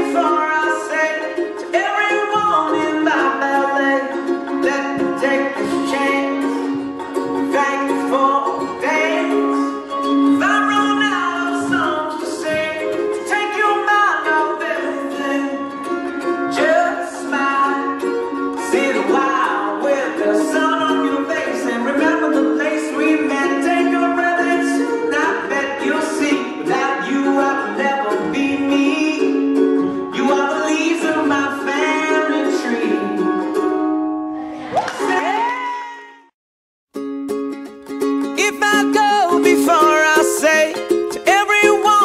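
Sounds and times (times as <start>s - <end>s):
instrumental pop music: 0.0s - 35.8s, 37.0s - 42.0s.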